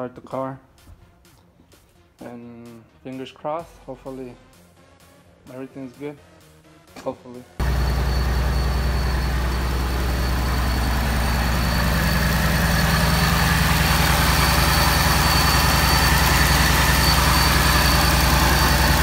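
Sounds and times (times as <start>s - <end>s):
car engine idling: 7.6s - 19.0s
high whine: 7.6s - 19.0s.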